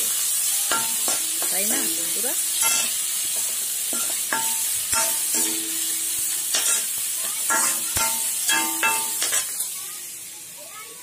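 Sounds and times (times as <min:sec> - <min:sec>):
onions sizzling in hot oil: 0:00.0 - 0:11.0
metal ladle scraping pan: 0:00.7 - 0:09.6
pan ringing: 0:04.0 - 0:06.3, 0:07.5 - 0:09.4.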